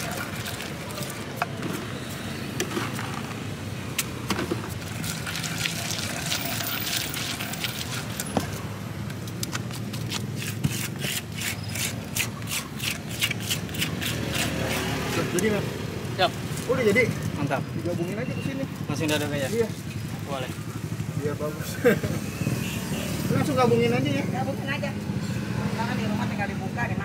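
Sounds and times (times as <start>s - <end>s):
wood scraping on stone: 9.3s - 15.4s
pestle mashing wet sauce: 9.7s - 15.2s.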